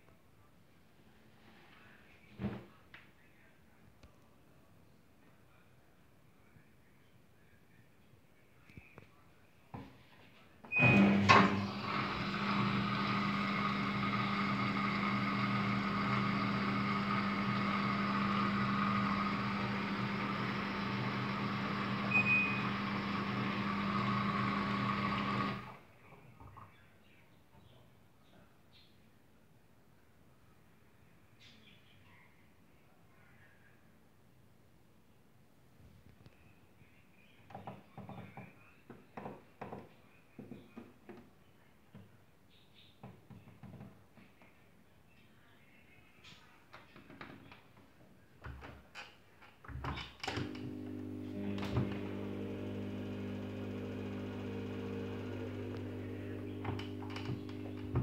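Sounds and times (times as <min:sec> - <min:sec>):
washing machine motor hum: 0:10.7 - 0:25.8, 0:50.2 - 0:58.0.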